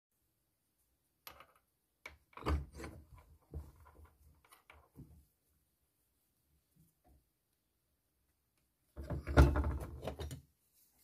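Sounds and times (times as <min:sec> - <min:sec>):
metal knocks and scrapes in vise: 0:02.3 - 0:05.1.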